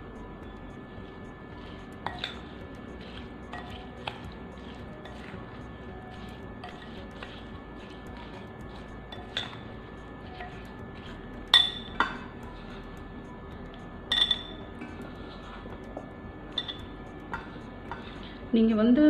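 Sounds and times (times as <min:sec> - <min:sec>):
metal spoon clinking glass bowl: 0:02.0 - 0:02.5, 0:08.2 - 0:09.7, 0:11.5 - 0:12.4, 0:14.1 - 0:14.7, 0:16.6 - 0:18.1.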